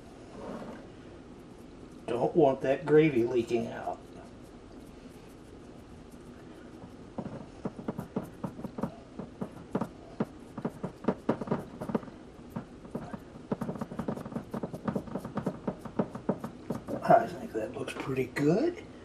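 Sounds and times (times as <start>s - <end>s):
hands patting raw ground meat: 7.1s - 17.2s.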